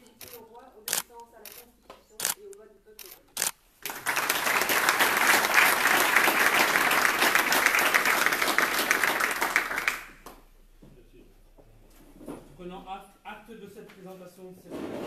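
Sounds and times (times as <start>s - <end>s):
crowd applauding: 3.8s - 10.3s.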